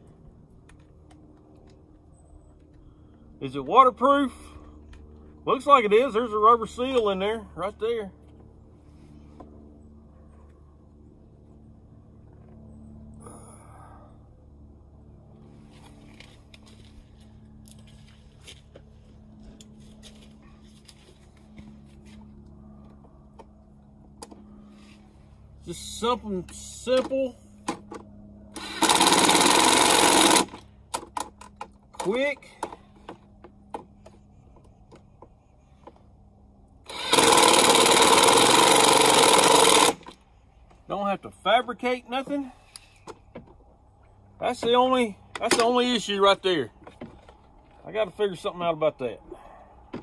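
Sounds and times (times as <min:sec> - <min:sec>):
steady low hum: 0:00.0 - 0:50.0
impact driver hammering a bolt: 0:36.9 - 0:40.2.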